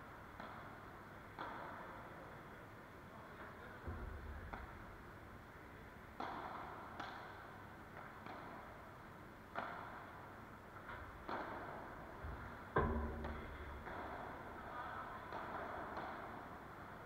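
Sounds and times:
ball bouncing off glass walls: 10.9 - 14.4
padel ball hit with rackets: 12.8 - 14.2.

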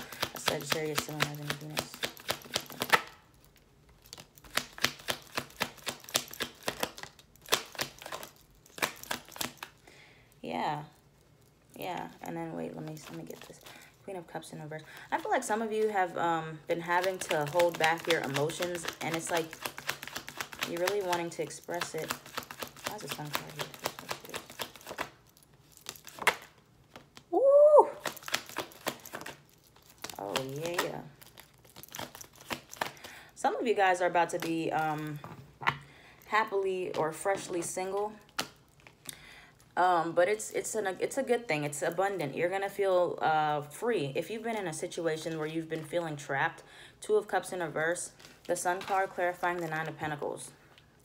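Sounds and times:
cards being shuffled: 0.0 - 3.2, 3.9 - 9.8, 16.8 - 27.4, 28.0 - 33.2.

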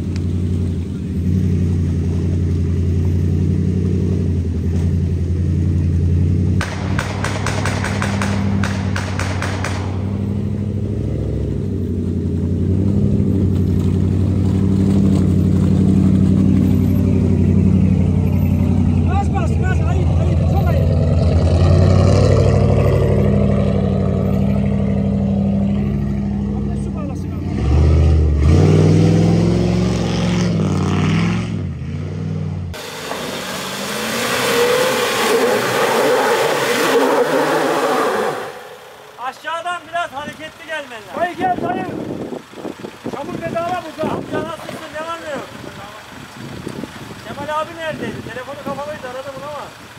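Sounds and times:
engine revving hard: 20.0 - 26.4, 27.3 - 38.9
truck engine running under load: 40.2 - 49.9.

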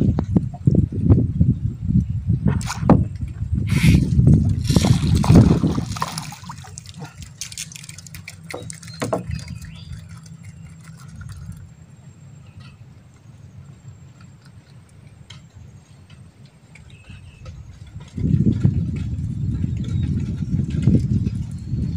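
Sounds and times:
water splashing: 3.7 - 11.9
fish clicking and knocking in boat: 4.2 - 11.7, 12.4 - 21.9.

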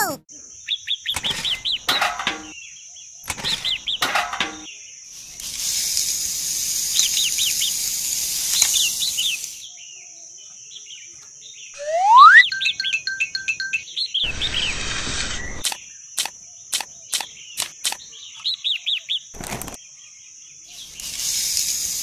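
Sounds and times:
sand pouring from buckets: 5.2 - 9.6, 20.8 - 22.0
birds chirping: 8.6 - 21.1
loud rising whistle: 11.8 - 12.6
short beeps: 11.8 - 13.8.

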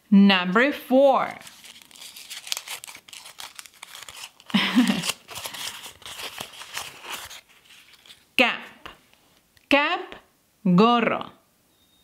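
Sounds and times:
paper crackling: 1.2 - 8.3.

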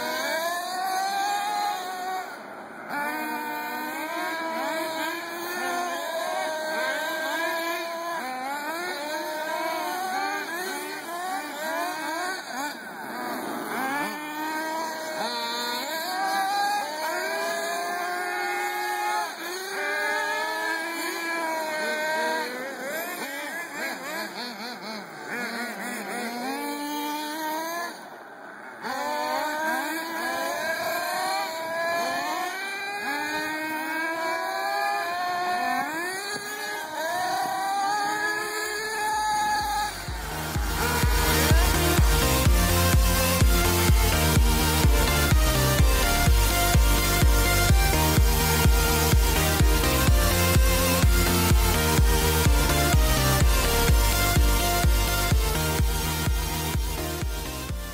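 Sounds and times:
nitro engines revving: 0.0 - 57.9.

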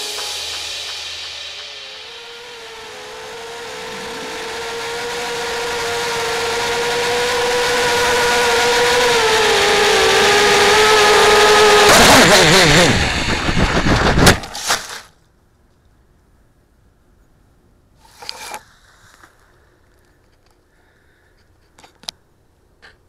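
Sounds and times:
drone crash knocks: 0.0 - 7.6
drone motors whining: 2.1 - 13.8.

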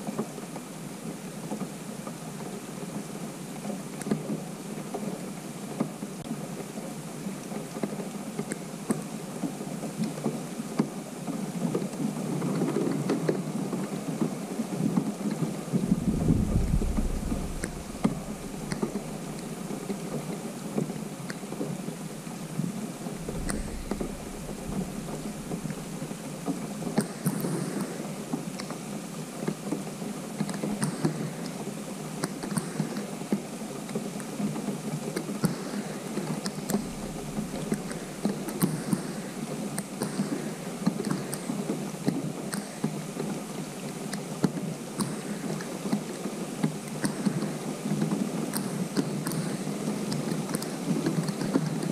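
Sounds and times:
rain falling on pond water: 0.0 - 51.9
wind rumble on microphone: 9.0 - 32.0, 34.0 - 42.4.

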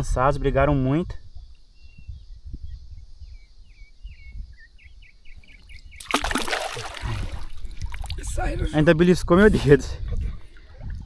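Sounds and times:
water splashing: 5.9 - 8.6.

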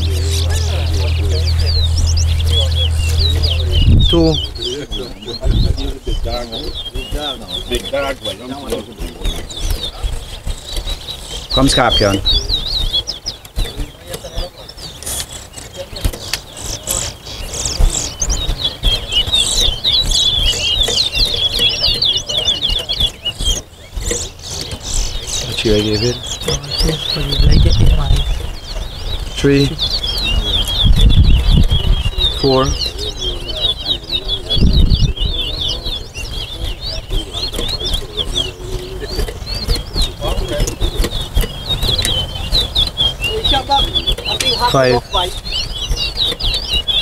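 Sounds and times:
dull low thump: 0.0 - 14.6
finch singing: 0.0 - 47.0
low background rumble: 0.0 - 47.0.

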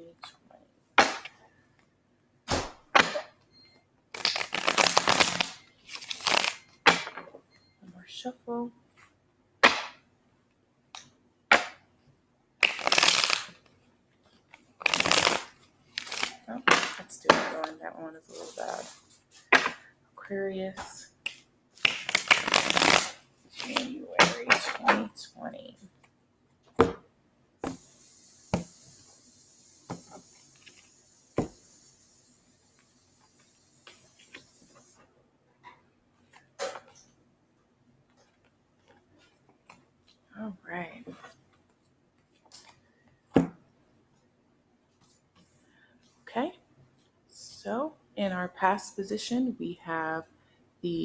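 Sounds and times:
cards shuffling with rapid clicks: 4.1 - 6.6, 12.6 - 13.6, 14.5 - 17.7, 21.2 - 25.0.

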